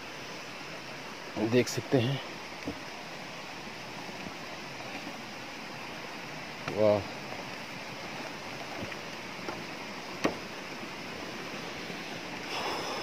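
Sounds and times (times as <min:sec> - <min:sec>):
stream rushing: 0:00.0 - 0:13.0
footsteps on wooden planks: 0:06.6 - 0:10.6.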